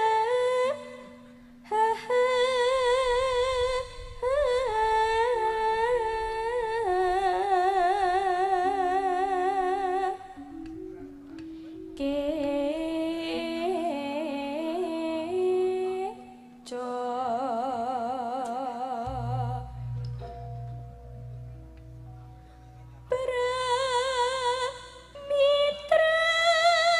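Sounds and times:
woman singing with vibrato: 0:00.0 - 0:10.6, 0:11.8 - 0:20.2, 0:23.1 - 0:26.9
instrument holding steady notes: 0:00.0 - 0:26.2
low pulsing beat: 0:19.1 - 0:23.4.

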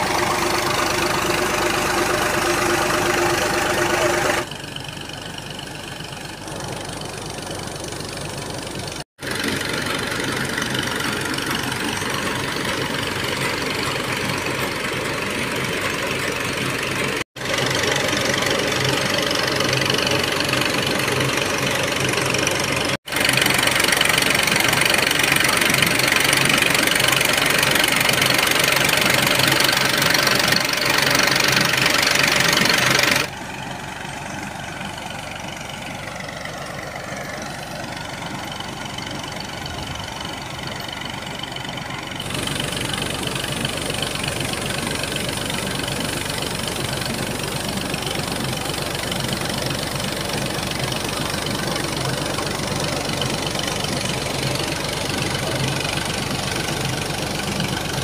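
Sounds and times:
diesel engine running under load: 0:00.0 - 0:58.0
water gushing from a pipe: 0:09.2 - 0:33.3, 0:42.2 - 0:58.0.

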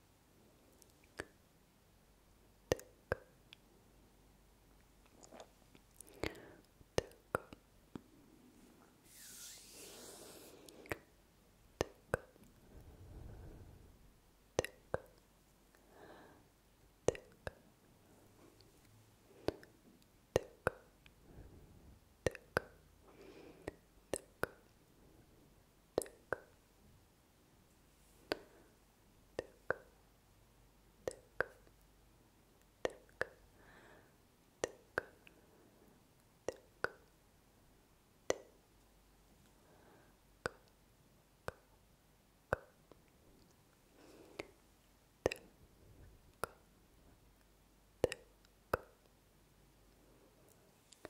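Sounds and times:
tongue clicks: 0:00.8 - 0:01.4, 0:02.7 - 0:03.6, 0:11.8 - 0:12.5, 0:14.6 - 0:15.2, 0:17.1 - 0:17.6, 0:20.3 - 0:20.9, 0:22.2 - 0:22.8, 0:23.7 - 0:24.7, 0:26.0 - 0:26.6, 0:29.4 - 0:29.9, 0:31.0 - 0:31.8, 0:34.6 - 0:35.3, 0:36.4 - 0:37.1, 0:38.3 - 0:38.6, 0:45.2 - 0:45.6, 0:46.3 - 0:46.7, 0:48.0 - 0:49.1
soft breathy sounds: 0:05.0 - 0:27.0, 0:27.7 - 0:30.0, 0:32.7 - 0:37.2, 0:39.2 - 0:40.8, 0:42.5 - 0:51.0.

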